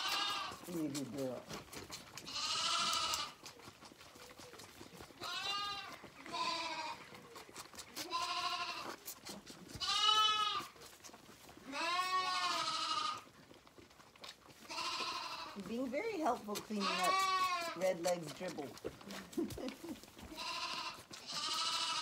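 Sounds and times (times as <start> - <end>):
lambs bleating: 0.0 - 0.9, 2.1 - 3.4, 5.2 - 7.2, 7.9 - 10.8, 11.6 - 13.3, 14.6 - 15.6, 16.3 - 18.7, 20.2 - 22.0.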